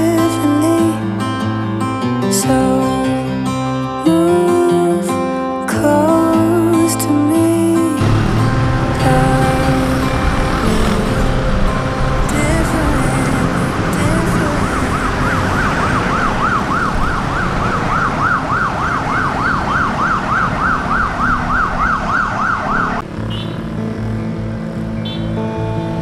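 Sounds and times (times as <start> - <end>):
road traffic: 6.1 - 26.0
siren yelping: 8.4 - 23.6.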